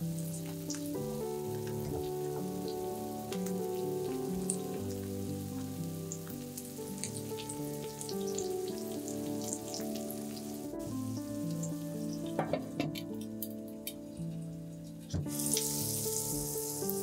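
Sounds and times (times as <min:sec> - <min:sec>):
food sizzling in oil: 0:00.0 - 0:13.2, 0:15.3 - 0:17.0
soft background music: 0:00.0 - 0:17.0.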